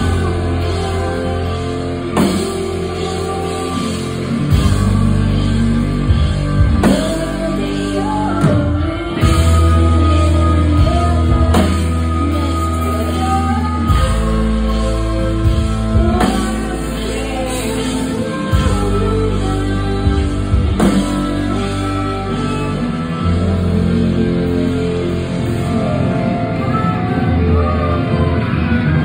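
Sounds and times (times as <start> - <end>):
drum kit: 0.0 - 29.0
electric guitar: 0.0 - 29.0
person singing lead vocals: 0.0 - 29.0.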